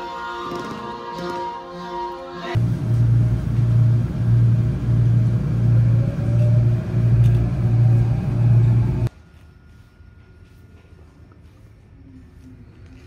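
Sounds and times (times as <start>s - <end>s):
subway train pulsing rumble: 2.5s - 13.0s
faint motor whine: 2.6s - 11.6s.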